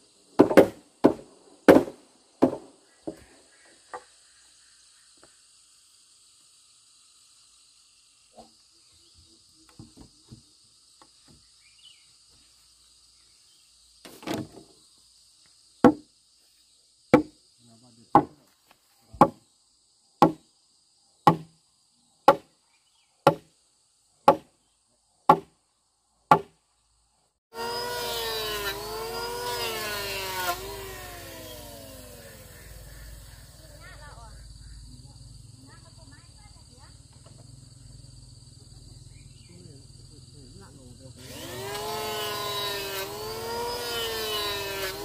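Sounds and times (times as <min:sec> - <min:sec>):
high insect drone: 0:00.0 - 0:45.0
tool striking wood: 0:00.4 - 0:03.2, 0:15.8 - 0:16.1, 0:17.2 - 0:17.4, 0:18.1 - 0:18.4, 0:20.2 - 0:20.4, 0:21.2 - 0:21.5, 0:22.3 - 0:22.5, 0:23.2 - 0:23.5, 0:24.3 - 0:24.5, 0:25.3 - 0:25.5, 0:26.3 - 0:26.6
motor revving: 0:27.5 - 0:33.8, 0:41.2 - 0:45.0.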